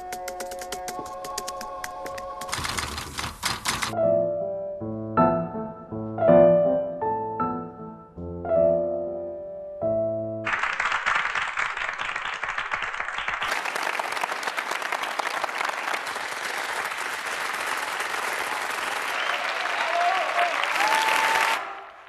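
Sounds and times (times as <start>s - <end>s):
audience applauding: 10.5s - 22.0s.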